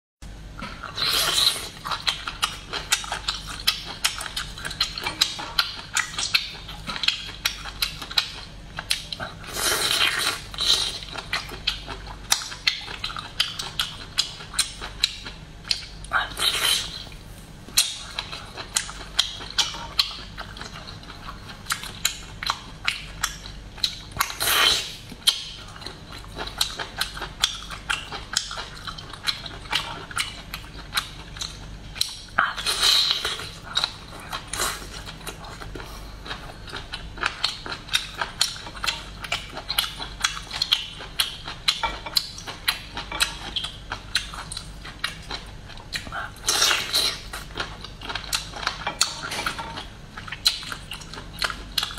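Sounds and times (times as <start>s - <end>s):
wet chewing clicks and smacks: 1.7s - 51.9s.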